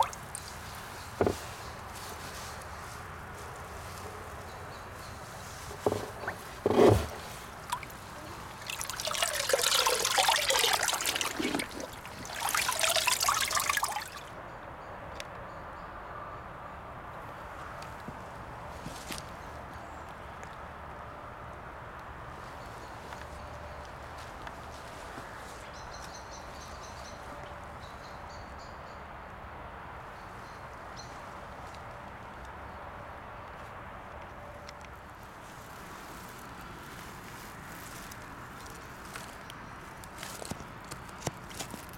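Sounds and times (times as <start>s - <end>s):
water splashing and trickling: 0.0s - 2.3s, 5.6s - 14.3s.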